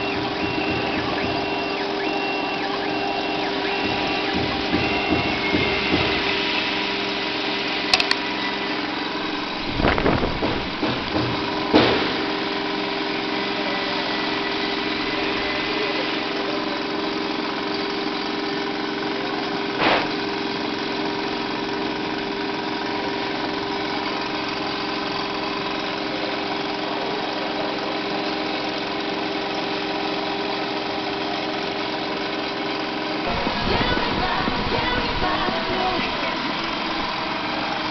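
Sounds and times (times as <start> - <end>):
cnc router spindle whine: 0.0 - 19.2.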